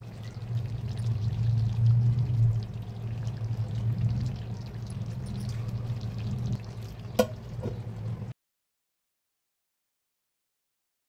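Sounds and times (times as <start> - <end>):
curry sizzling in a pot: 0.0 - 8.1
low hum: 0.0 - 8.3
metal lid clink: 7.2 - 7.8.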